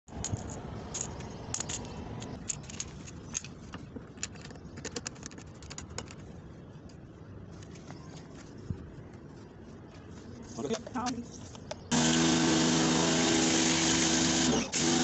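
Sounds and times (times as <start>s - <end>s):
hose fitting clicking and rattling: 0.1s - 6.3s
steady background noise: 0.1s - 12.0s.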